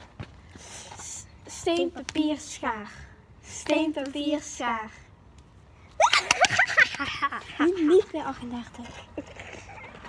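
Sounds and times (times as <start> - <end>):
girls squealing: 6.0 - 6.8.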